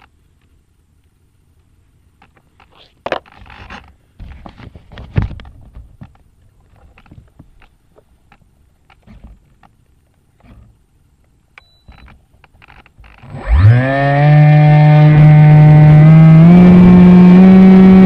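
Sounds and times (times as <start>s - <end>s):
handling noise rubbing and scraping: 2.2s - 10.9s.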